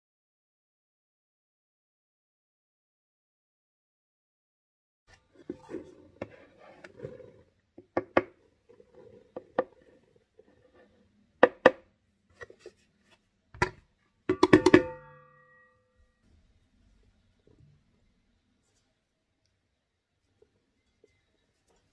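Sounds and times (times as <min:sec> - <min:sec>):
bowls knocking together: 0:13.6 - 0:15.4
steel bowl ringing: 0:14.4 - 0:15.9.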